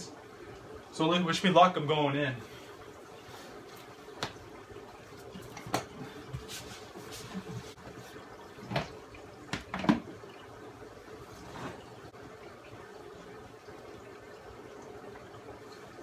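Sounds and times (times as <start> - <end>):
aquarium running water: 0.0 - 16.0.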